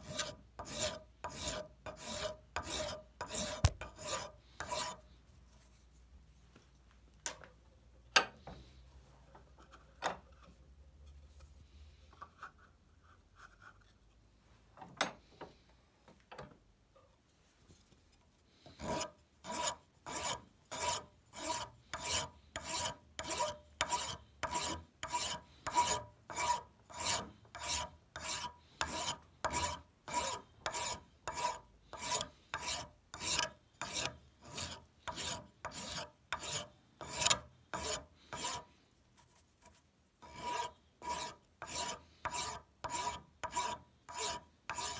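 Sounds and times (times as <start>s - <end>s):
wood rasp on wooden handle: 0.0s - 5.0s, 18.7s - 38.7s, 40.2s - 44.9s.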